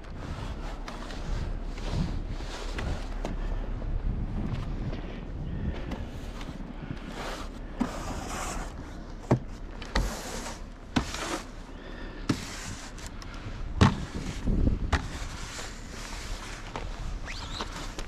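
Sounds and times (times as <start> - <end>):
snow shovel scraping snow: 7.0 - 8.8, 9.9 - 11.6, 12.3 - 13.1, 13.8 - 18.0.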